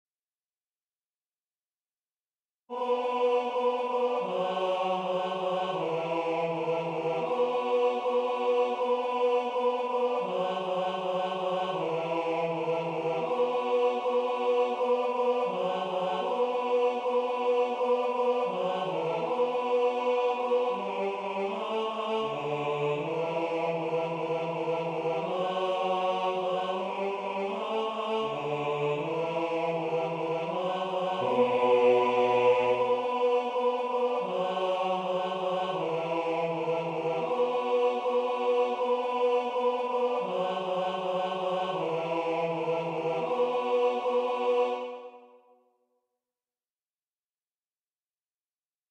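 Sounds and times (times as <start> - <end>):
synthesized choral chords: 2.7 - 45.5.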